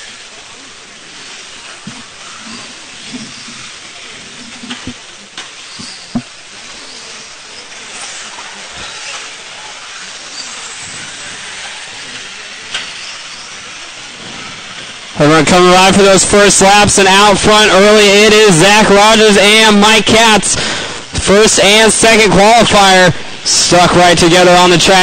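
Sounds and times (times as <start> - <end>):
rc car motors and tyres hissing: 0.0 - 16.6.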